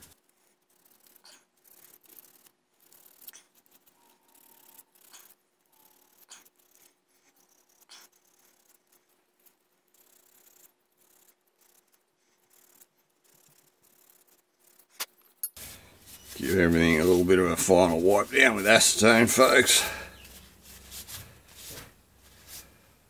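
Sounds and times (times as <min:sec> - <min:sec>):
sandpaper scratching metal: 0:15.6 - 0:22.9.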